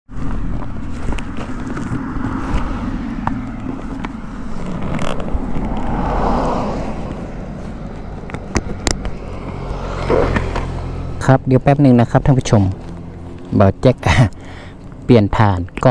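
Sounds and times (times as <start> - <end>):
car passing by: 1.8 - 13.6.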